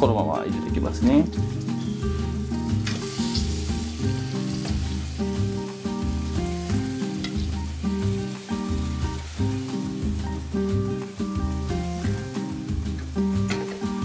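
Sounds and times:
crabs sizzling in oil: 0:01.2 - 0:14.0.

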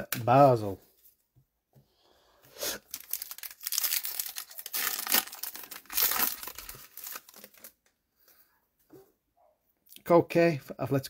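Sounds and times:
foil pack tearing and crinkling: 0:02.8 - 0:07.8.

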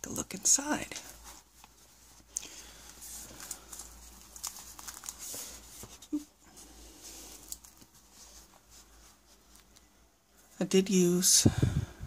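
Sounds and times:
paper rustling: 0:01.0 - 0:09.8.

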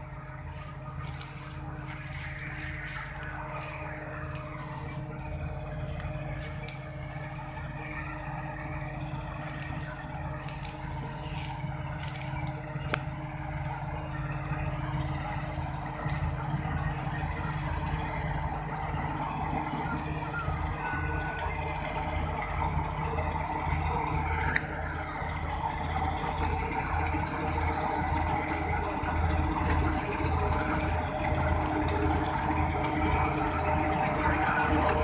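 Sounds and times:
combine harvester running: 0:00.0 - 0:35.0
diesel engine humming: 0:00.0 - 0:35.0.

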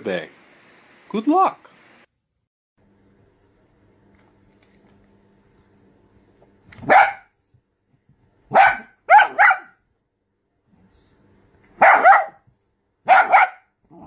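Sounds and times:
dog barking: 0:06.8 - 0:07.3, 0:08.5 - 0:09.8, 0:11.8 - 0:12.4, 0:13.0 - 0:13.7.

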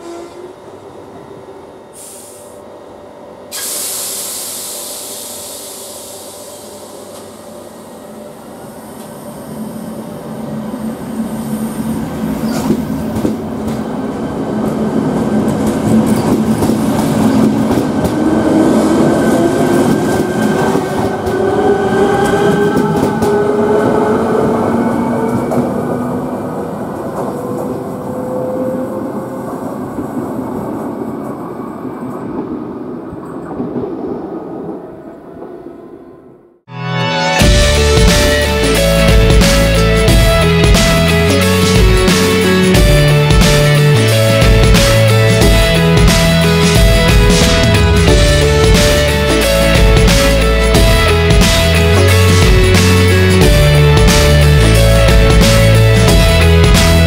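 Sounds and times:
hiss of air: 0:01.9 - 0:02.6, 0:03.5 - 0:07.2.

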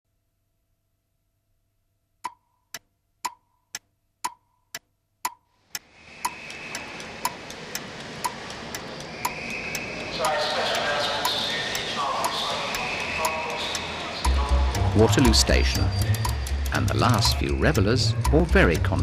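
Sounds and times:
clock ticking: 0:02.2 - 0:19.0
station platform background noise: 0:05.8 - 0:19.0.

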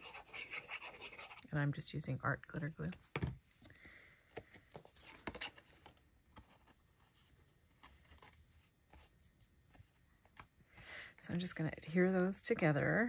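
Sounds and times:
glue scratching on cardstock: 0:00.0 - 0:01.4.

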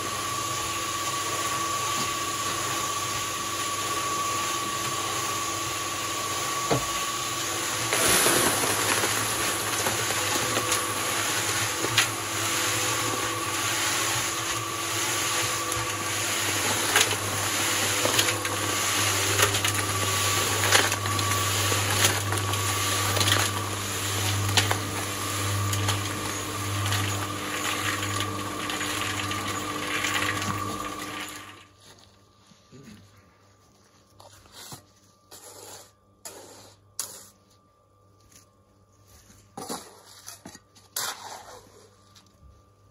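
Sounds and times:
cement mixer motor hum: 0:00.0 - 0:32.1
concrete sliding out: 0:07.8 - 0:25.0.

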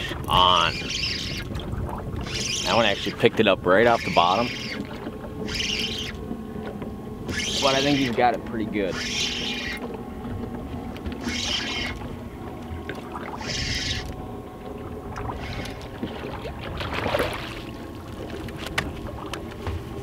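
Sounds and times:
fish splashing out of water: 0:15.1 - 0:17.7.

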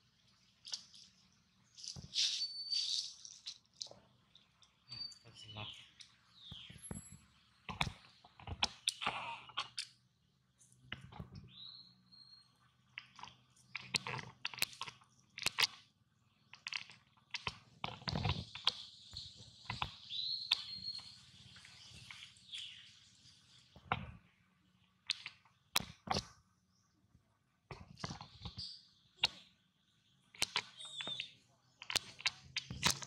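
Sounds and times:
short high squeak: 0:02.2 - 0:03.2.

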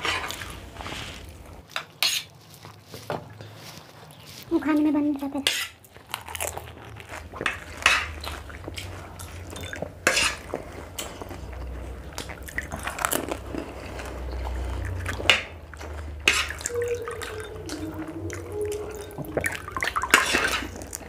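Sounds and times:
chewing: 0:00.0 - 0:21.0
crunching crisp food: 0:00.0 - 0:21.0
low steady hum: 0:05.9 - 0:21.0.

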